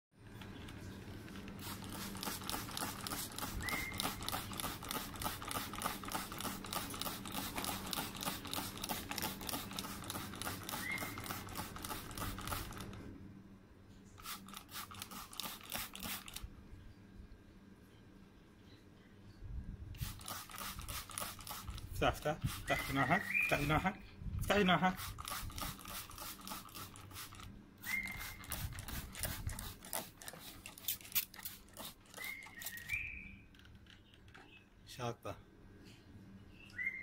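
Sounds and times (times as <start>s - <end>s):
parrot clicking: 2.2s - 13.0s
parrot whistle-like chirps: 3.6s - 4.2s, 10.7s - 11.2s, 22.7s - 23.7s, 27.8s - 28.4s, 32.1s - 33.4s, 36.6s - 37.0s.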